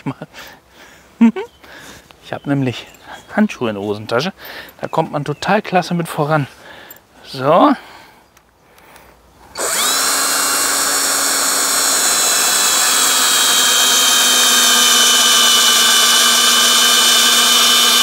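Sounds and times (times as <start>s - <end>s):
electric drill running: 9.5s - 18.0s.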